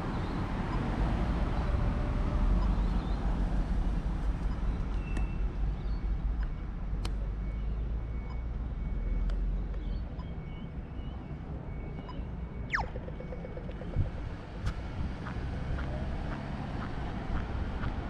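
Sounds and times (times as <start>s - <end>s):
cars driving past: 12.7s - 18.0s.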